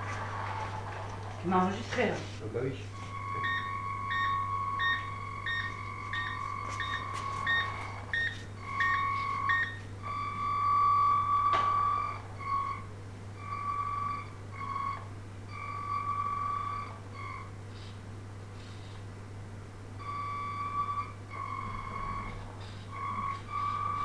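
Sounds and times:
low electrical hum: 0.0 - 24.0
electronic beeping: 3.1 - 12.8, 20.0 - 24.0.

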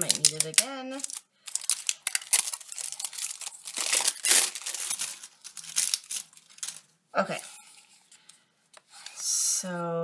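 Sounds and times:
packaging crinkling and rustling: 0.0 - 6.9.

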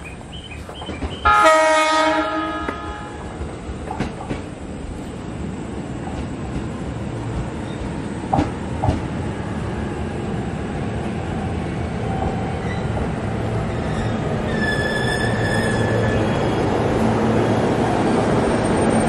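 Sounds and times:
train brakes squealing: 0.0 - 3.2, 12.6 - 13.0, 13.7 - 16.7
wheels clacking over rail joints: 0.0 - 5.2
train wheels and motors rumbling: 0.0 - 19.0.

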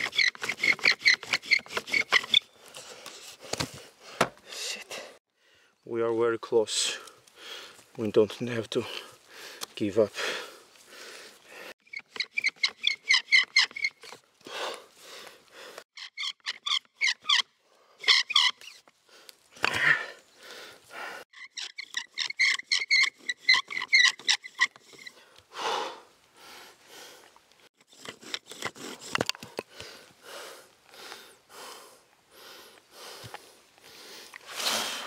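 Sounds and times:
wooden spindle squeaking: 0.0 - 2.6, 11.8 - 14.3, 15.9 - 18.9, 21.3 - 25.3, 27.8 - 29.6
hard breathing: 7.0 - 7.9, 8.8 - 11.8, 14.4 - 15.9, 19.0 - 21.3, 25.1 - 27.4, 28.6 - 35.0.

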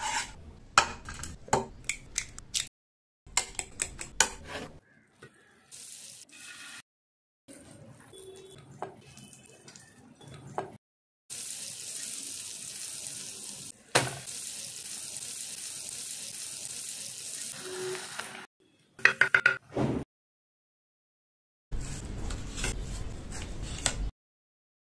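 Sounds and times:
batter sizzling in a pan: 11.3 - 18.5.

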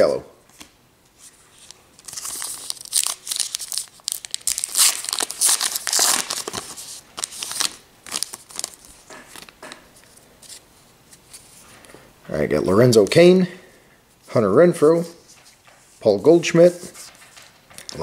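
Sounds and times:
card pack wrapper tearing and crinkling: 1.6 - 9.6.

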